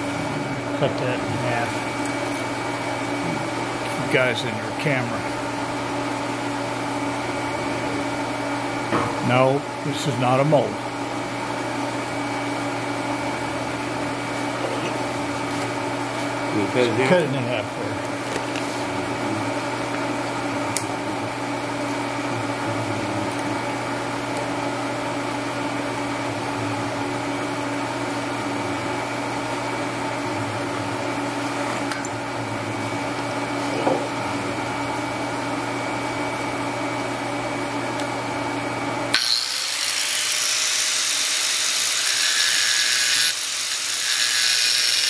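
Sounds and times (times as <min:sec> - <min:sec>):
electrical machine hum: 0:00.0 - 0:45.0
angle grinder whining: 0:11.2 - 0:24.6, 0:39.0 - 0:45.0.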